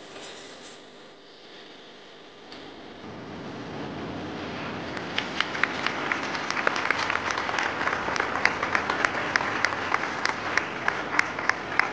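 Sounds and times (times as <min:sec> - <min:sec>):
audience applause: 0:03.1 - 0:11.9.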